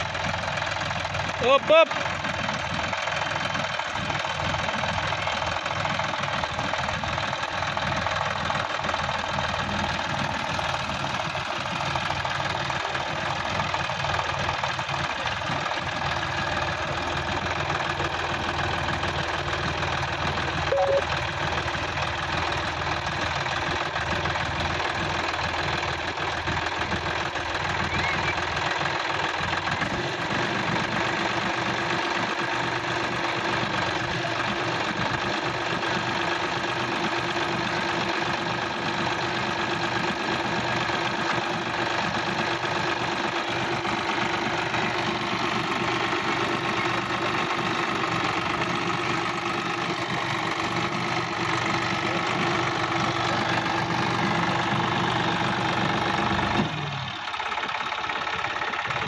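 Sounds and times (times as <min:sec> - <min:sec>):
tractor diesel engine knocking: 0:00.0 - 0:59.0
brief high note: 0:20.7 - 0:21.1.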